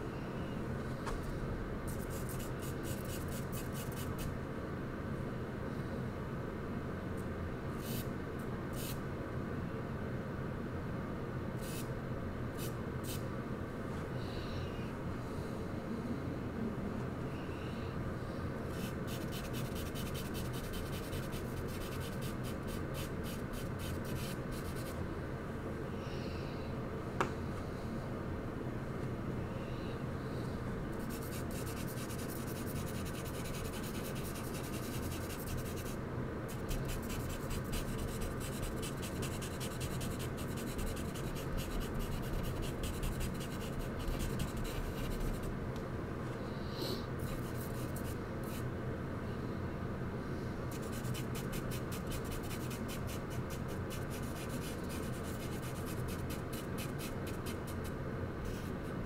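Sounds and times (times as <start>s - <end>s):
steady low hum: 0.0s - 59.0s
charcoal scratching on paper: 1.9s - 4.1s, 18.8s - 25.0s, 31.0s - 45.5s, 50.7s - 57.9s.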